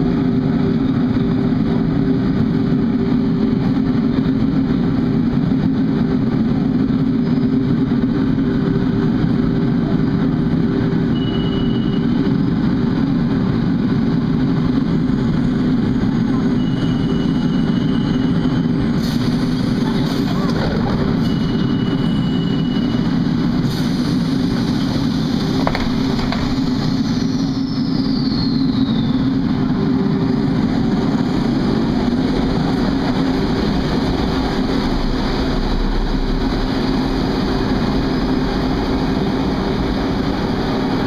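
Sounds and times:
train rumbling: 0:00.0 - 0:41.0
high steady tone: 0:11.0 - 0:12.4, 0:16.4 - 0:18.8.

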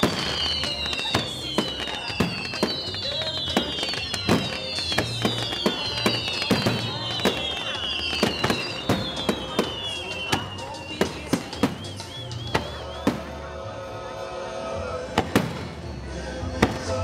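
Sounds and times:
firework whistles sliding down: 0:00.0 - 0:13.3
wavering firework whistle: 0:00.0 - 0:13.6.

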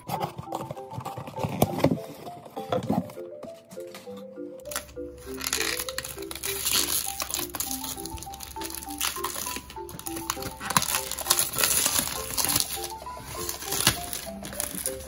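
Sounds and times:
piano music: 0:00.0 - 0:15.0
plastic wrap crackling: 0:04.6 - 0:15.0.

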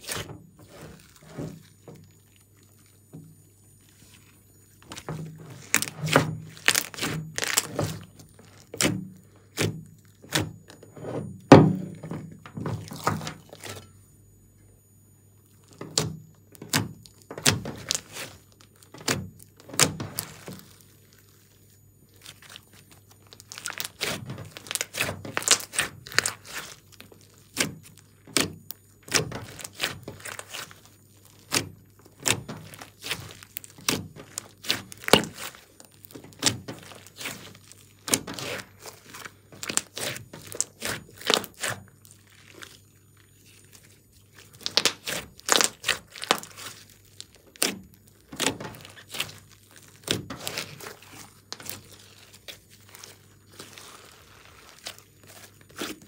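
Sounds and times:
slime squelching: 0:00.0 - 0:14.0, 0:15.4 - 0:56.0.

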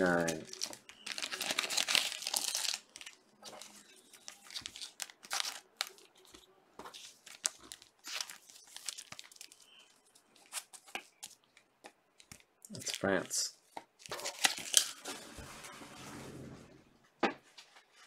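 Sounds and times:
plastic packaging crinkling: 0:00.0 - 0:15.2
cards rustling and clicking: 0:00.2 - 0:13.1, 0:13.7 - 0:15.0.

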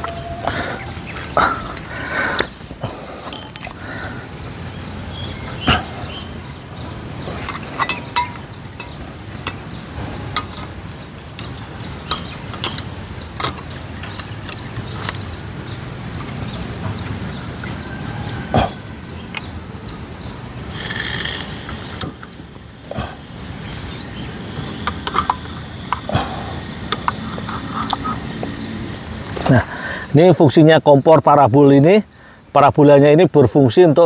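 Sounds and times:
metal gas canister clicks and knocks: 0:07.4 - 0:09.6.

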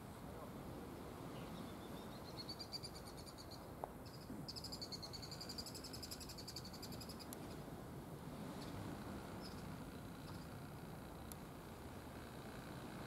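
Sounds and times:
faint outdoor hiss: 0:00.0 - 0:13.0
cricket chirping trills: 0:01.5 - 0:07.5, 0:08.5 - 0:13.0.

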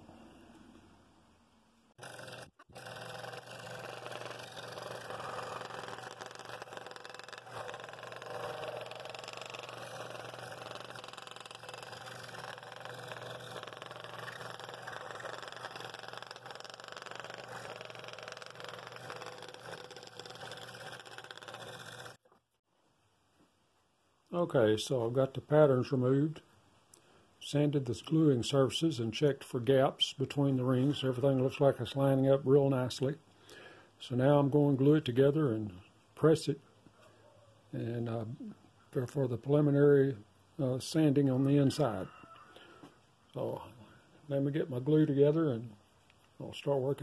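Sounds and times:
scroll saw cutting wood: 0:02.0 - 0:22.3.

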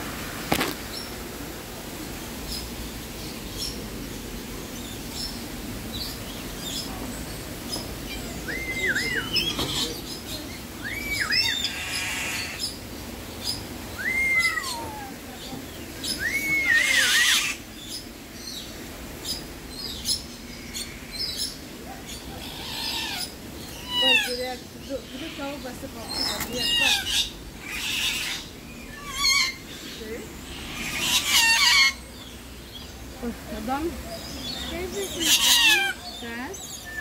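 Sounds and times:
parrot screeches: 0:16.2 - 0:17.6, 0:22.4 - 0:24.4, 0:26.6 - 0:29.6, 0:30.7 - 0:32.0, 0:35.2 - 0:36.0.

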